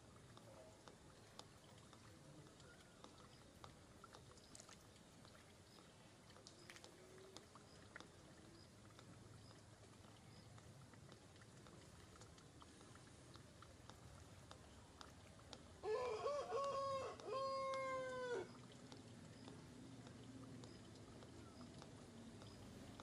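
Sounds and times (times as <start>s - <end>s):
small clicks: 10.3s - 15.8s, 18.7s - 23.0s.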